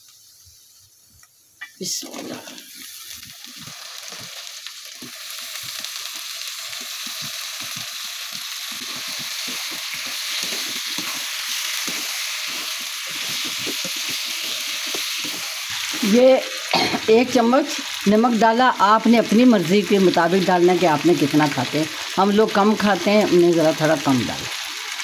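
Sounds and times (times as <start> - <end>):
potatoes sizzling in oil: 0.0 - 25.0
spatula scraping and knocking pan: 6.7 - 15.9.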